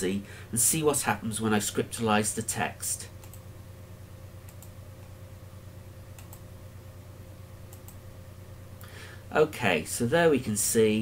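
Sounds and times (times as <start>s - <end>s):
low electrical hum: 0.0s - 11.0s
computer mouse clicking: 3.2s - 3.4s, 4.4s - 4.8s, 6.1s - 6.4s, 7.7s - 8.0s.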